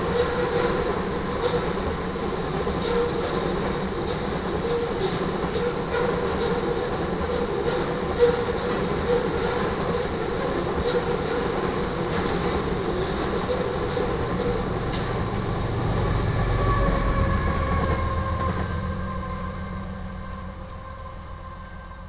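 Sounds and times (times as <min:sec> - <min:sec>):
train wheels on rails: 0:00.0 - 0:22.0.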